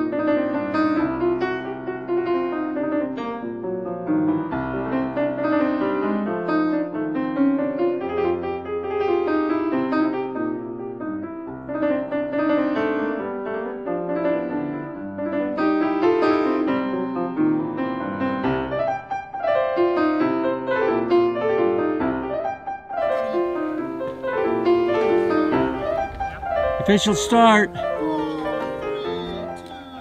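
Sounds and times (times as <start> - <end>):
piano music: 11.7 - 30.0.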